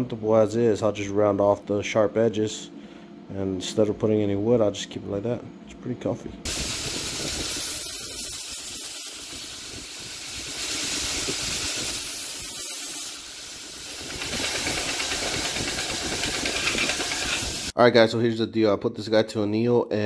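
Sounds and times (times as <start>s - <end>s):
belt grinder grinding steel: 10.4s - 17.7s.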